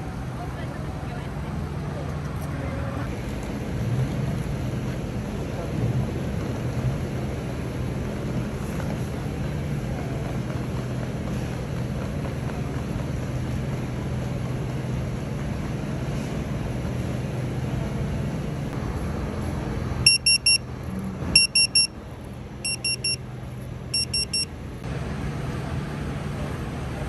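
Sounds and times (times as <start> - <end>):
pager high electronic beeps: 20.1 - 20.6, 21.4 - 21.9, 22.6 - 23.2, 24.0 - 24.5.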